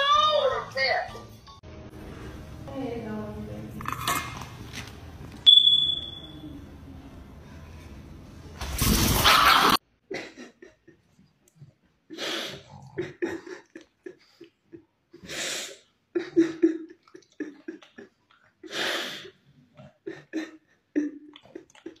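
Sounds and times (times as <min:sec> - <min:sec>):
man sniffling and sobbing: 0:12.1 - 0:22.0.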